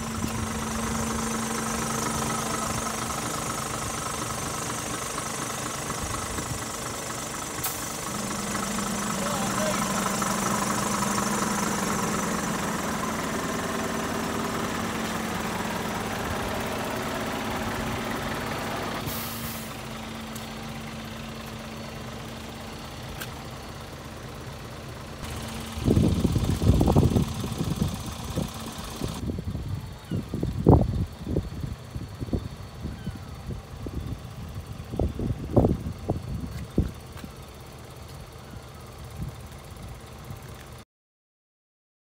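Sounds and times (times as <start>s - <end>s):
diesel engine idling: 0.0s - 40.8s
wind buffeting microphone: 25.7s - 37.0s.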